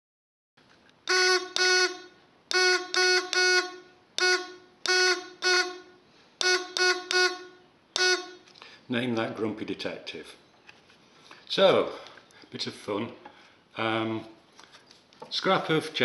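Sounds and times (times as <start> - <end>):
buzzer beeps: 1.1 - 8.4.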